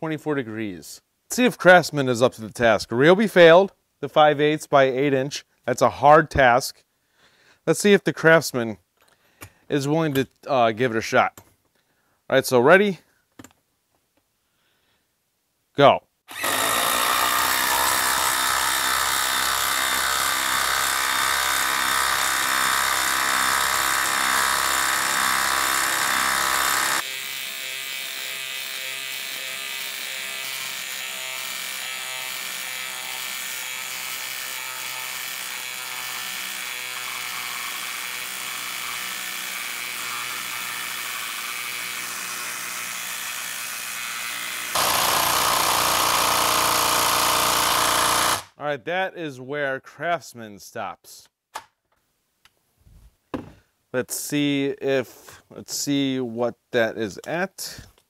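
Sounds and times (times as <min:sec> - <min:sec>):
impact driver buzzing: 0:16.3 - 0:48.5.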